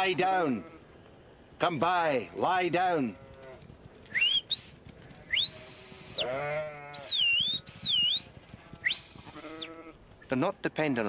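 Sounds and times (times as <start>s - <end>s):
sheep bleating: 2.2s - 3.6s, 5.2s - 7.8s, 8.6s - 10.0s
high herding whistles: 4.1s - 9.8s.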